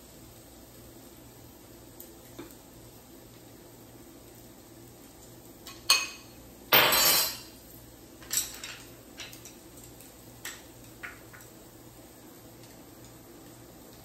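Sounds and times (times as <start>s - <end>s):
metal utensil clinking glass bowl: 5.9s - 7.5s.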